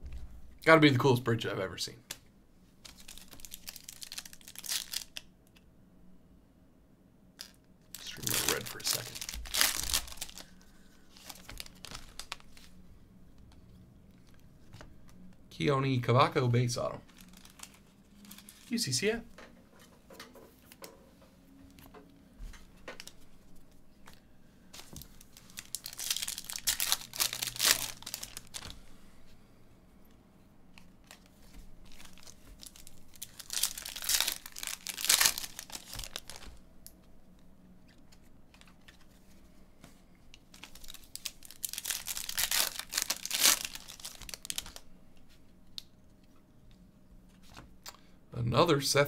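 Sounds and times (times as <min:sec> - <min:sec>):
foil wrappers tearing and crinkling: 0:02.8 - 0:05.2, 0:07.4 - 0:12.7, 0:17.1 - 0:18.9, 0:24.8 - 0:28.8, 0:31.0 - 0:36.6, 0:40.5 - 0:44.8.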